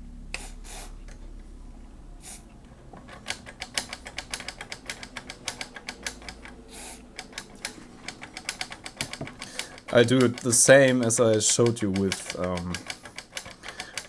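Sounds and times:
switches clicking: 3.1s - 14.0s.

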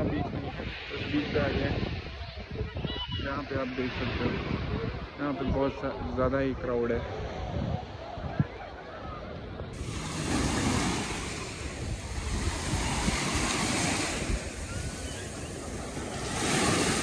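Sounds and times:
small waves breaking on sand: 0.0s - 2.5s, 9.8s - 17.0s
wind buffeting microphone: 0.0s - 17.0s.

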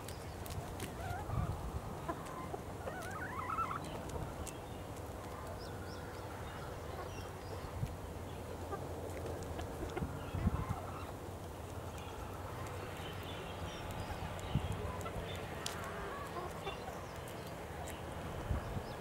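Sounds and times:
chickens clucking softly: 0.2s - 19.0s
chicken wavering calls: 0.4s - 7.9s.

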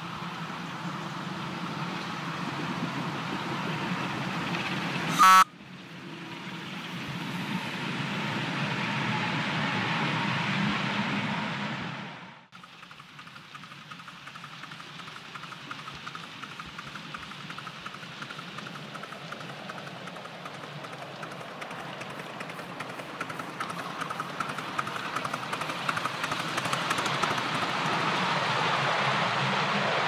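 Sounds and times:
steam locomotive ticking beat: 4.6s - 5.5s, 12.5s - 28.4s.

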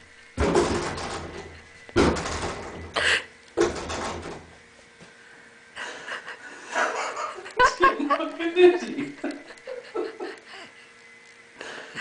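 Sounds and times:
cat striking wooden closet doors: 0.4s - 3.0s, 3.6s - 4.6s.

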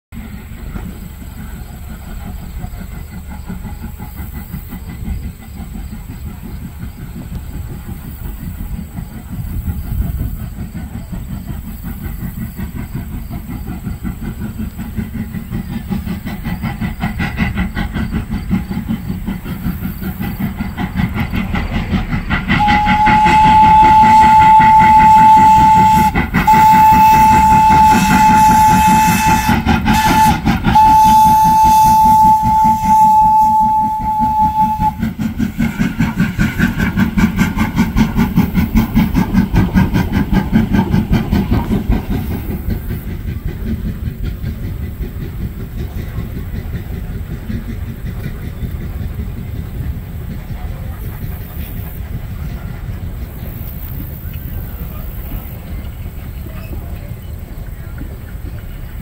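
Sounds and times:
steam locomotive chuffing: 0.2s - 59.0s
wheels clattering on rail: 0.2s - 59.0s
steam whistle blasts: 22.6s - 35.2s.

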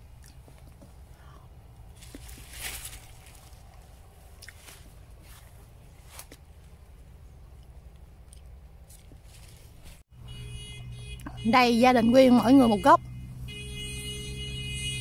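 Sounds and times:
outdoor rustling: 0.0s - 10.1s.

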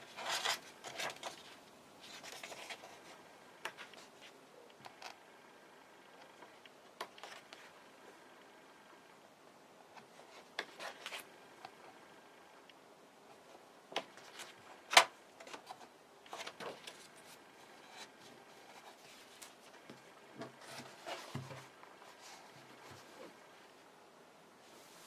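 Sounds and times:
book pages turning: 0.0s - 5.2s, 6.1s - 7.8s, 10.0s - 11.9s, 13.3s - 23.5s.

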